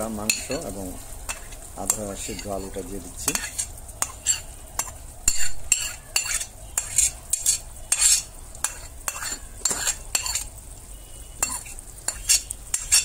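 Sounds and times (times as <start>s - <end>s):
spoon scraping ceramic plate: 2.3s - 10.5s, 11.4s - 13.0s.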